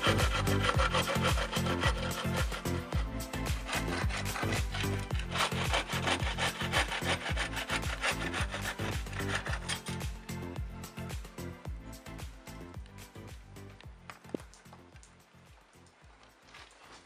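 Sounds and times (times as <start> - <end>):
bow saw cutting wood: 0.0 - 10.5.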